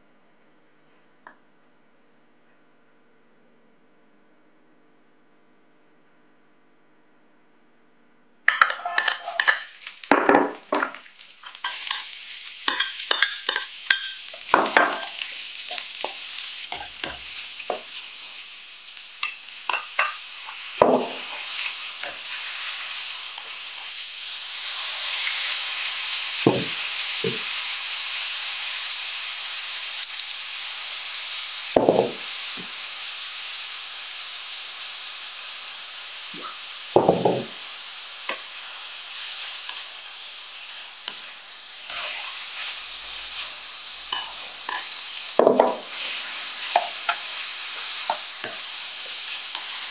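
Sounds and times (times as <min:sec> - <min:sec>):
ladle clanking and scraping wok: 0:08.5 - 0:18.0, 0:19.2 - 0:22.4, 0:40.7 - 0:49.9
meat sizzling in hot oil: 0:08.5 - 0:49.9.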